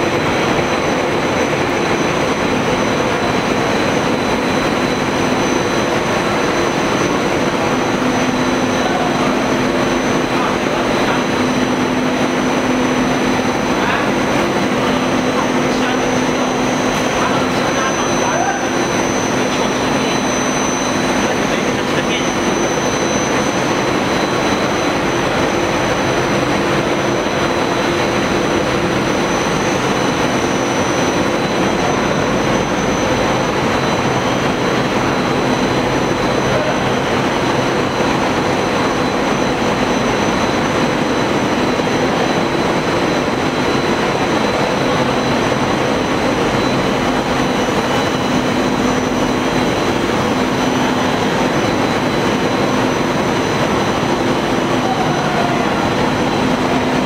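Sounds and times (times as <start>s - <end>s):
constant machine tones: 0.0s - 57.0s
production line machinery: 0.0s - 57.0s.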